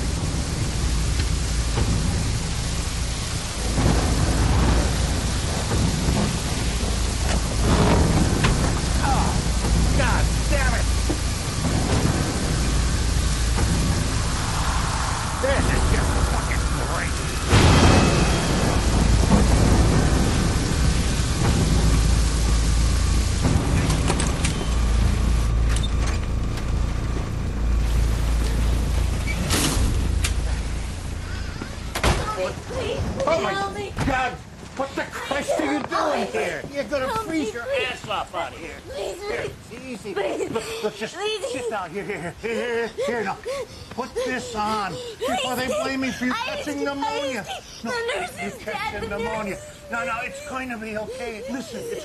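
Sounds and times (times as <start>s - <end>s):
thunder rumbling: 0.0s - 34.8s
heavy rain pouring: 0.0s - 52.0s.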